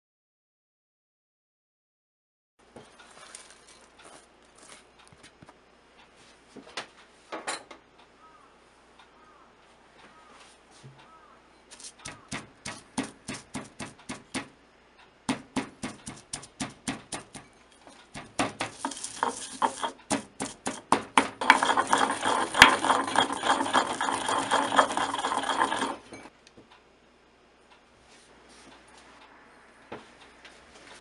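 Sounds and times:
pestle grinding against ceramic bowl: 11.8 - 14.5, 15.6 - 26.3
wooden pestle pounding in bowl: 11.9 - 14.6, 15.3 - 17.5, 18.1 - 26.3.

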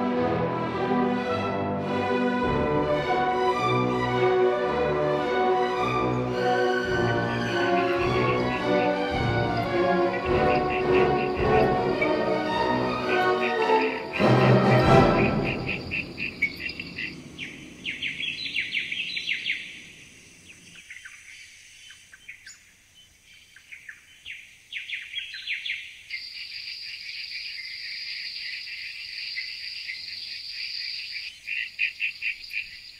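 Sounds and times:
music chord: 0.0 - 17.9
insects chirping in trills: 6.3 - 32.9.

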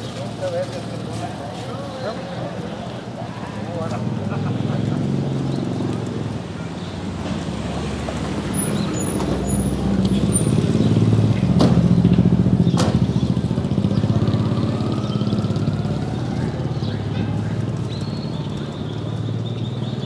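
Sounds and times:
vehicle engine running: 7.1 - 20.0.

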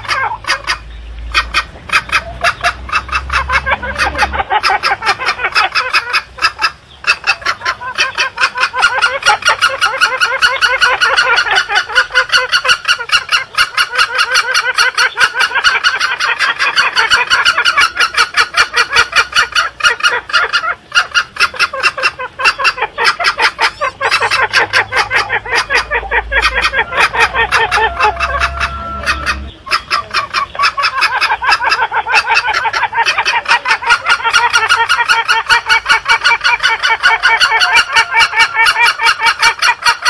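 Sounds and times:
junglefowl clucking rapidly: 0.0 - 40.0.

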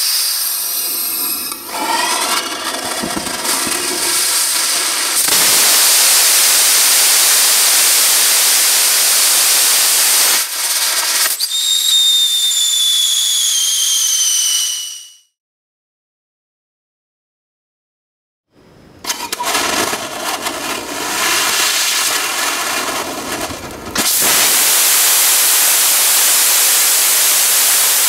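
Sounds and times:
rocket engine roaring: 0.0 - 10.5, 19.4 - 28.0
whistling tones falling in pitch: 11.4 - 15.3.

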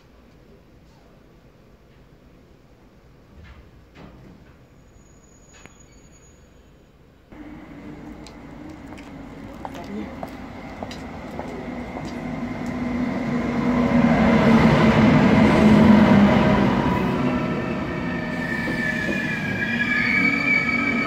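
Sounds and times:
high brake squeal: 4.6 - 7.0, 17.7 - 21.0
train rumble: 7.3 - 21.0.

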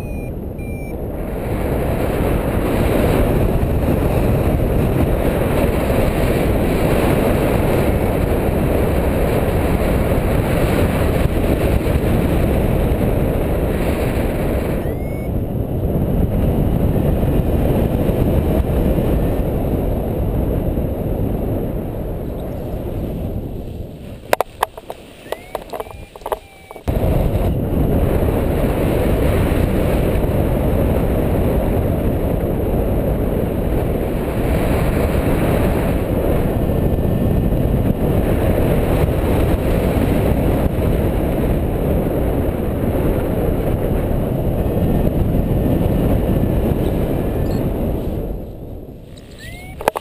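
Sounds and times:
wind rumbling over microphone: 0.0 - 50.0
sharp clicks: 24.4 - 26.9.

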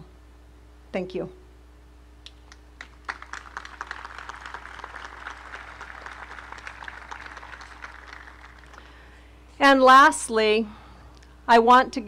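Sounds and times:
crowd applauding: 2.5 - 9.1.

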